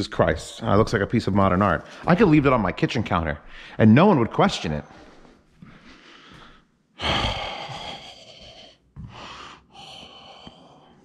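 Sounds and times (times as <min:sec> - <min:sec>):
man gasping breaths: 0:04.9 - 0:11.0.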